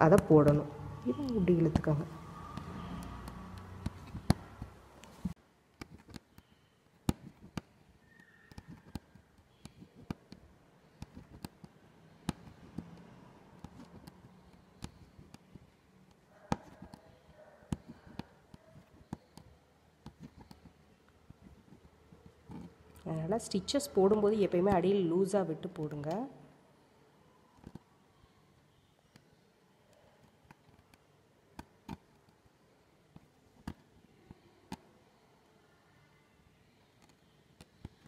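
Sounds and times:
needle clicking through silk fabric: 0.0 - 26.2.

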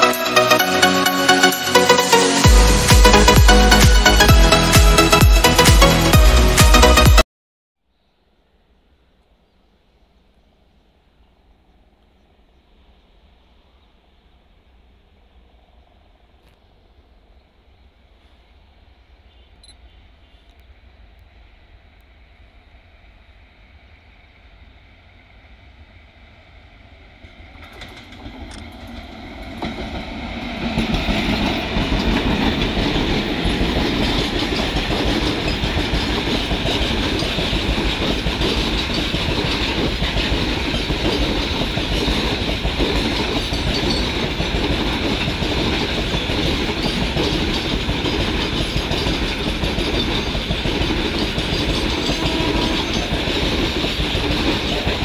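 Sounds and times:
freight train passing at speed: 0.0 - 7.2, 8.8 - 55.0
wagon wheels rumbling on track: 27.6 - 55.0.

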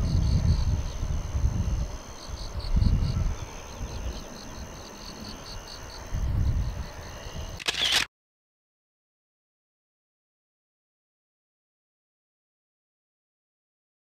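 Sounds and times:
wind buffeting microphone: 0.0 - 4.7, 6.0 - 7.6
faint high whine: 0.0 - 8.1
sharp click: 7.6 - 8.1.

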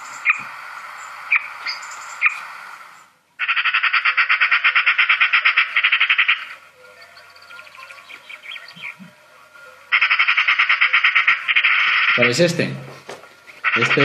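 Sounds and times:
magpie sharp calls: 0.0 - 9.0, 9.7 - 12.3, 13.5 - 14.0
magpie rattling chatter: 0.0 - 12.6, 13.4 - 14.0.

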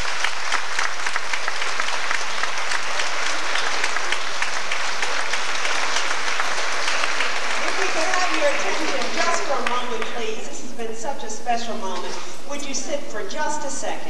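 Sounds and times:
large audience applauding: 0.0 - 10.4.

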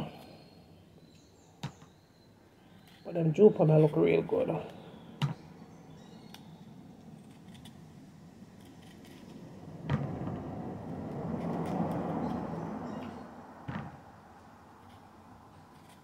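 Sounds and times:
rushing noise: 7.2 - 14.4.

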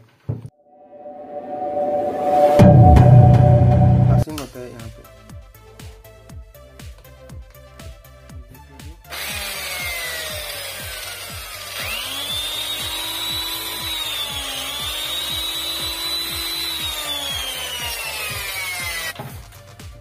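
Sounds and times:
electric chainsaw motor whining: 9.1 - 19.2.

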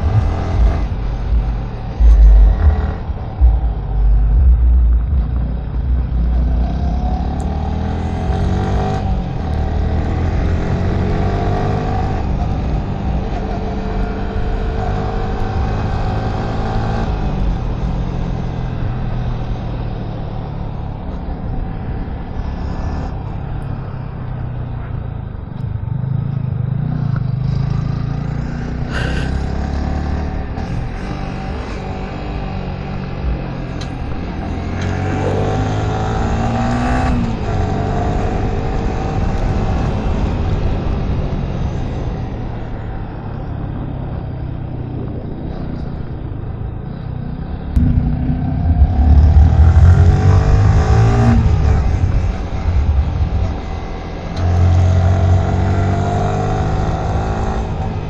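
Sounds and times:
motorcycle engine revving: 0.0 - 19.2, 24.6 - 41.1, 47.7 - 58.0
wind rumble on microphone: 0.0 - 27.8, 30.4 - 58.0.

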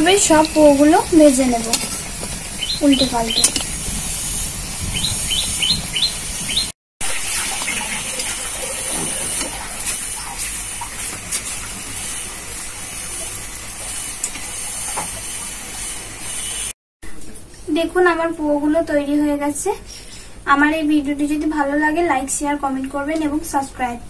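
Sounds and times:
oil sizzling: 0.0 - 16.7
bird chirping: 2.6 - 3.6, 4.9 - 6.7.

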